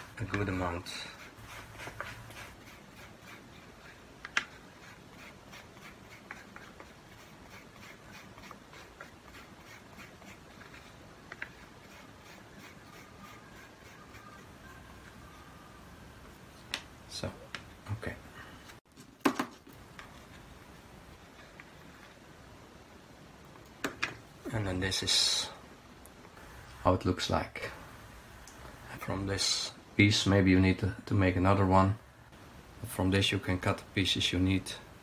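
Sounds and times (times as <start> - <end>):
rubbing and scratching: 0.0 - 15.2.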